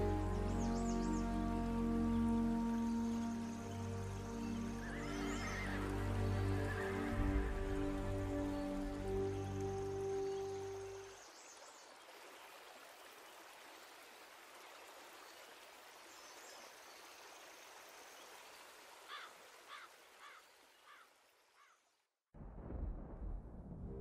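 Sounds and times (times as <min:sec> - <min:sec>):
background music: 0:00.0 - 0:11.1
flowing river water: 0:00.0 - 0:21.7.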